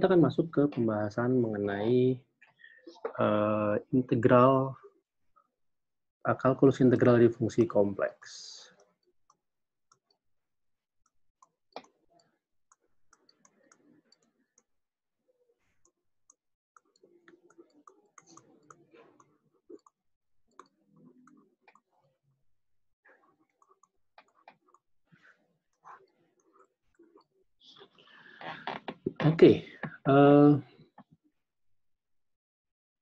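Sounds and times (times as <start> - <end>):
stylus clicking and scratching on tablet: 6.4 - 30.0, 30.7 - 31.4.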